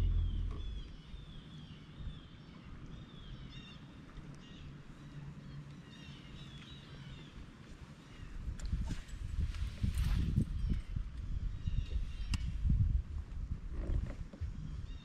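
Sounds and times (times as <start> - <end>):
low rumble: 0.0 - 2.3
faint low steady hum: 0.0 - 8.8
birds chirping: 0.0 - 9.0.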